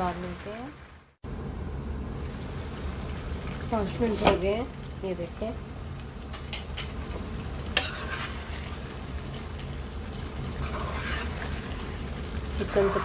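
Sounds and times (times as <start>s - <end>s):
curry sizzling in wok: 0.0s - 13.0s
spatula stirring: 7.7s - 13.0s.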